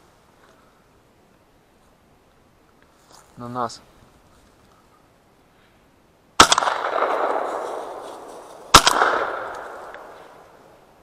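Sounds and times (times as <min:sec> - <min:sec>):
shotgun shots: 0:06.4 - 0:10.5
long rolling echo: 0:06.4 - 0:11.0.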